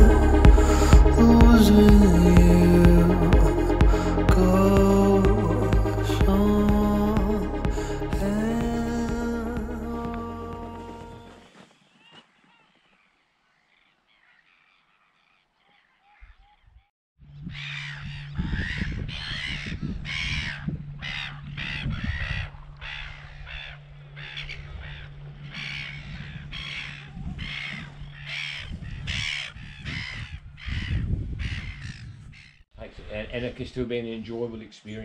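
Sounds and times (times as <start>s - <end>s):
steady low hum: 0.0s - 11.3s
seabirds calling: 0.0s - 32.6s.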